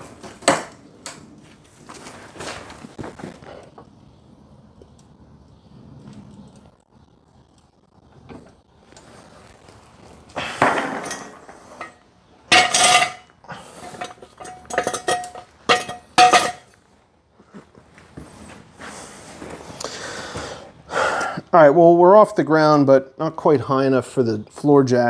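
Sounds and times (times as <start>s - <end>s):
floor jack clanking: 10.4s - 16.7s.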